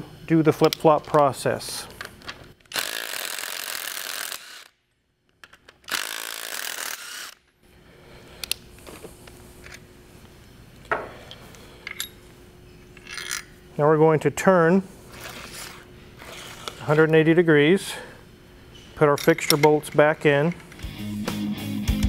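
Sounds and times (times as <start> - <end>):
cordless drill running: 2.7 - 4.7, 5.9 - 7.4.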